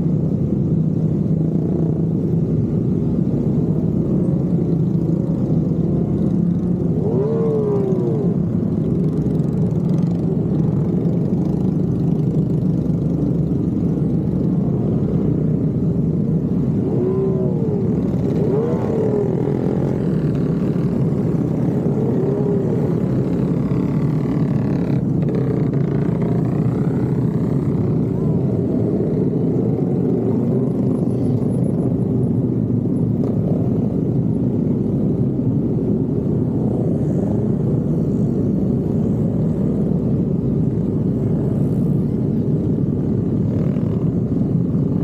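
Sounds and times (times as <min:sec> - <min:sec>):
motorcycle engines droning: 0:00.0 - 0:45.0
engine revving: 0:05.0 - 0:13.0, 0:16.4 - 0:31.4.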